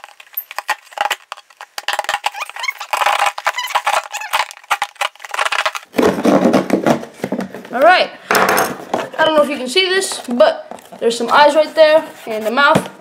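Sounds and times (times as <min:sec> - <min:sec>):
pen squeaks: 0:00.0 - 0:05.8.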